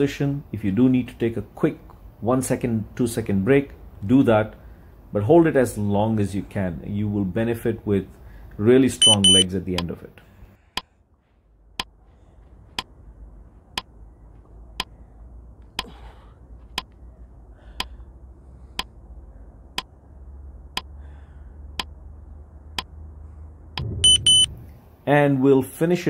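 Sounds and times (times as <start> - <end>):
timer ticking: 9.0 - 9.9.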